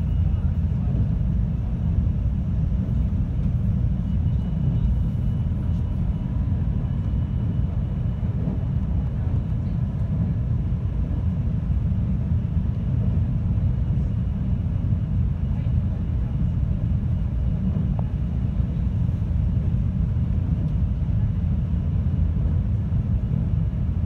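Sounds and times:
wheels rumbling on rail: 0.0 - 14.5.

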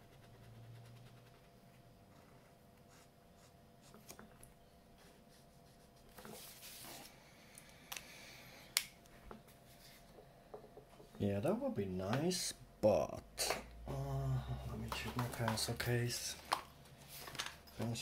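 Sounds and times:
marker scratching on paper: 2.1 - 4.1
paper rustling: 16.4 - 18.0.

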